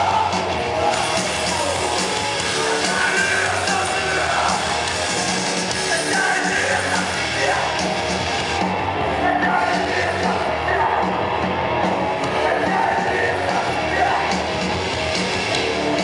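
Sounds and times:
shouted vocal: 0.0 - 4.8, 5.8 - 7.8, 9.0 - 14.6
drums: 0.0 - 16.0
electric guitars: 0.0 - 16.0.

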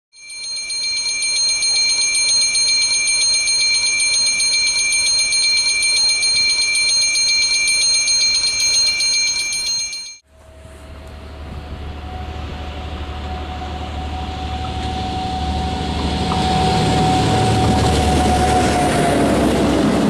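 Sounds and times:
railway warning bell ringing: 0.2 - 10.6, 11.2 - 20.0
approaching train rumble: 10.2 - 20.0.

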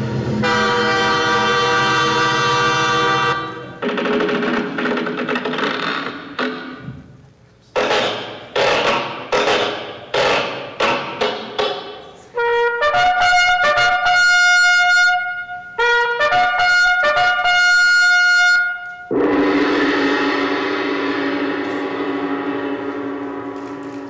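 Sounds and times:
held notes leaping higher: 19.1 - 24.0.

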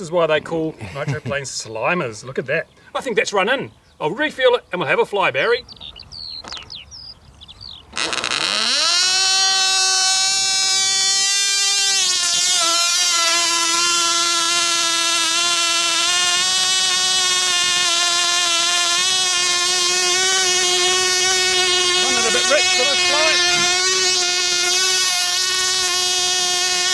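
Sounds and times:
tiny engine high-pitched whine: 7.9 - 26.9.

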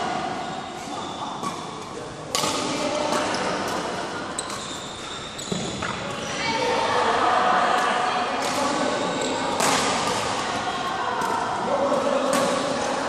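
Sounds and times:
murmur of voices: 0.0 - 13.0
shoe squeaks on court floor: 0.4 - 1.8, 4.4 - 6.4
racket striking shuttlecock: 2.3 - 4.7, 9.6 - 10.4.

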